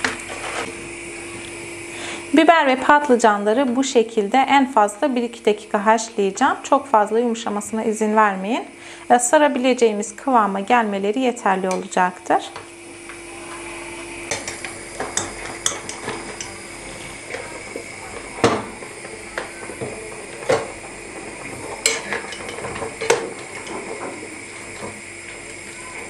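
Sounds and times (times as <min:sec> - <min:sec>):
steady hum: 0:00.0 - 0:26.0
metal skimmer clinking against pot: 0:14.2 - 0:25.9.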